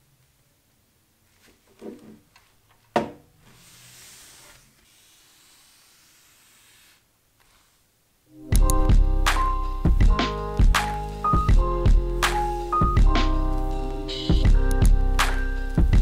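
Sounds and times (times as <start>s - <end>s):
soft hiss: 3.4s - 8.4s
music: 8.3s - 16.0s.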